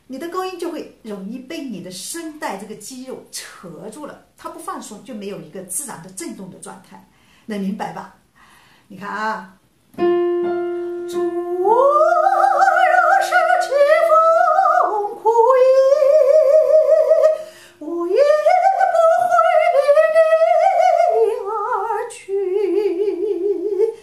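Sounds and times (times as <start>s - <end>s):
held keyboard note: 10.0s - 11.6s
woman singing vibrato notes: 10.0s - 24.0s.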